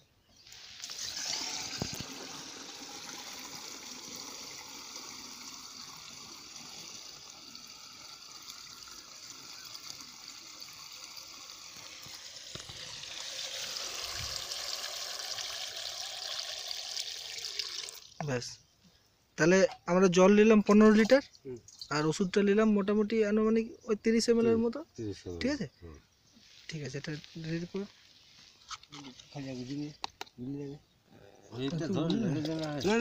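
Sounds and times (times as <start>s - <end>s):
water pouring into a tank: 0.5s - 18.2s.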